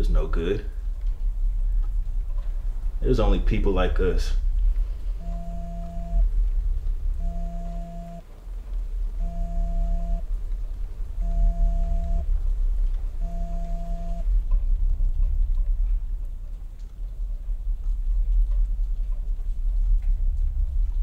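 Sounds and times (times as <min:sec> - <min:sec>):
deep rumbling drone: 0:04.3 - 0:21.0
pulsing electronic tone: 0:05.2 - 0:06.3, 0:07.2 - 0:08.2, 0:09.2 - 0:10.2, 0:11.2 - 0:12.2, 0:13.2 - 0:14.3.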